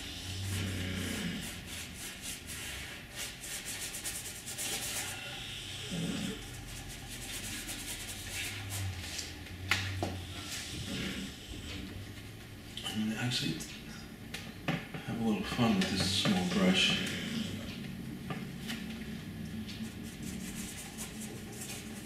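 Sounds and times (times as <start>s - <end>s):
paintbrush scrubbing on canvas: 0.0s - 9.3s, 19.9s - 22.0s.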